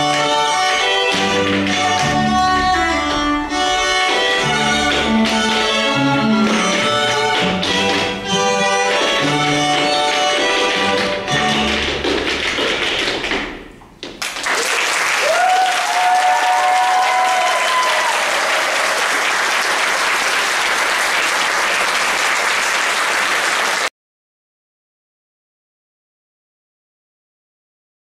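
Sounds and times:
string music: 0.0s - 13.8s
audience applauding: 14.1s - 23.9s
people cheering: 14.4s - 23.9s.

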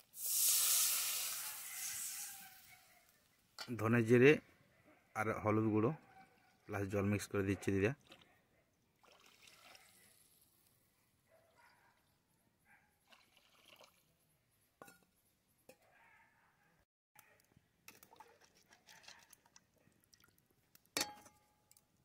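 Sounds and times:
steel cookware clinking: 21.0s - 21.5s.

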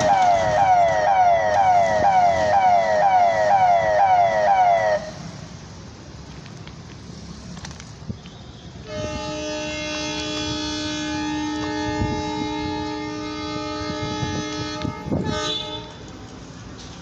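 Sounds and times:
electronic warning siren wailing: 0.0s - 5.2s
locomotive horn chord: 8.8s - 16.0s.

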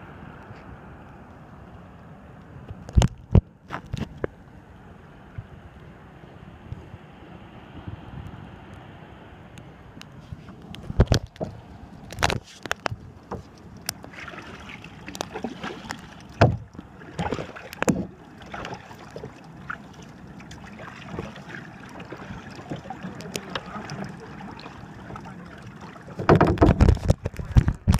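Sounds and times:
water sloshing against kayak hull: 10.0s - 27.9s
knocks and splashes: 10.8s - 27.9s.

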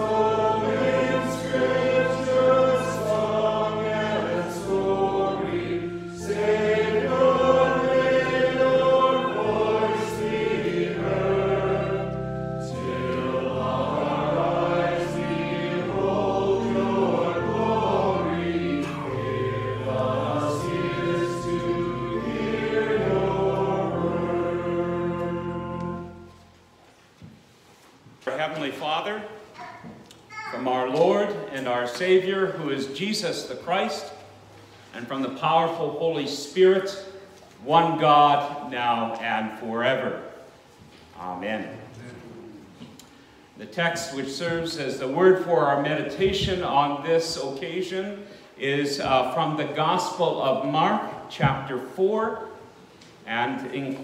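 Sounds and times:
group singing a hymn: 0.0s - 26.6s
instrumental accompaniment: 0.0s - 27.3s.

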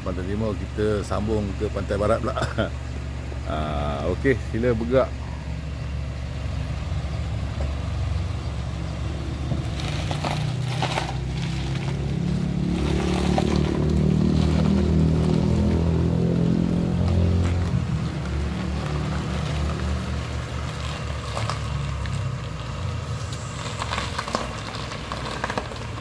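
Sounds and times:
car engine running: 0.0s - 26.0s
crunching on gravel: 9.1s - 26.0s.

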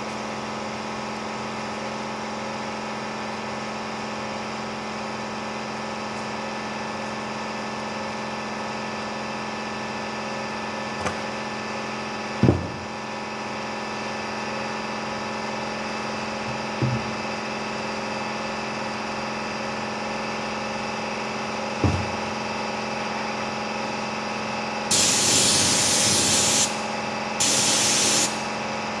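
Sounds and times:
loud thump: 12.4s - 12.9s, 16.8s - 17.2s, 21.8s - 22.2s.

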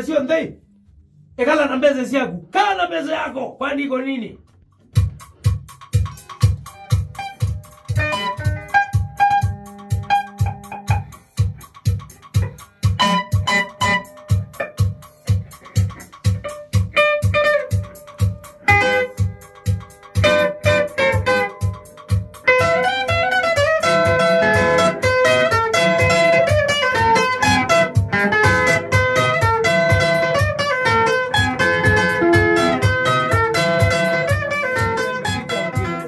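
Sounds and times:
band instrumental: 4.7s - 36.0s
lead guitar: 6.7s - 11.3s, 11.9s - 36.0s.

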